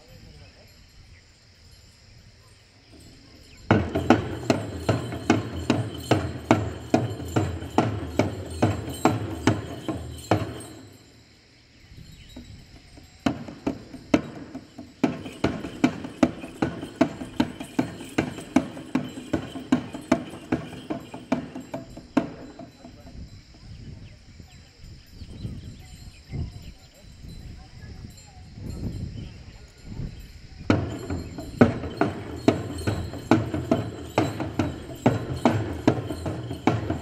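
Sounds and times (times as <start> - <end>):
frame drums beaten with sticks: 3.6 - 11.0, 12.3 - 23.3, 30.6 - 37.0.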